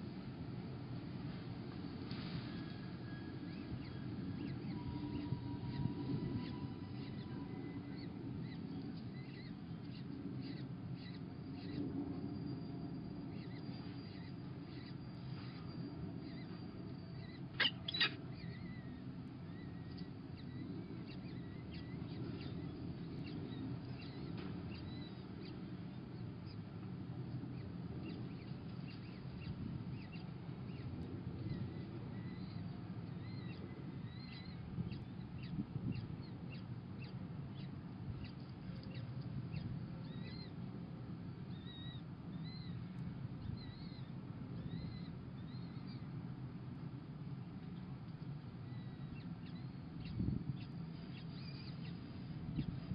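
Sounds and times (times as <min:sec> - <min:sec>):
steady low rumble: 0:00.0 - 0:52.9
falcon chicks cheeping: 0:13.4 - 0:26.7.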